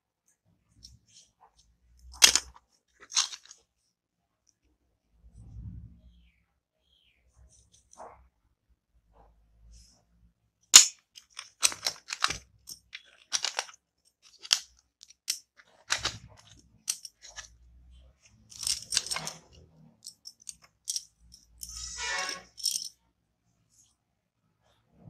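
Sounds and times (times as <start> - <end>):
screwdrivers clicking in plastic tray: 2.1 - 3.5, 10.8 - 17.5, 18.5 - 22.9.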